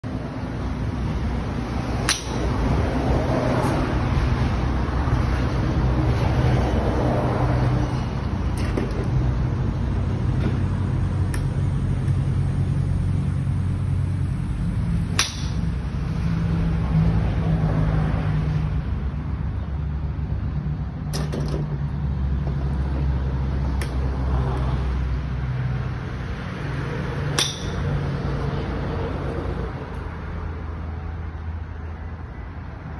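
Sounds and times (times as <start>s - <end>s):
golf club striking ball: 2.0s - 2.6s, 15.1s - 15.8s, 27.3s - 28.0s.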